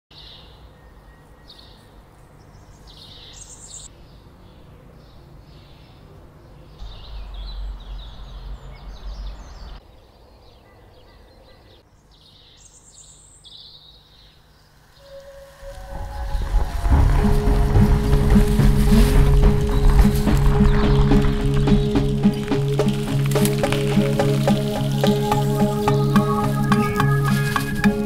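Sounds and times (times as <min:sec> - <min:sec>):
small birds chirping: 0:00.1 - 0:28.0
steady low rumble: 0:15.3 - 0:28.0.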